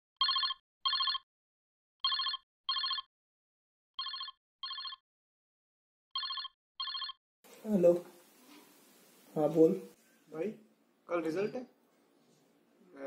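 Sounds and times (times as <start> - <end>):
phone ringing double ring: 0.2 - 1.2, 2.0 - 3.1, 4.0 - 5.0, 6.2 - 7.2.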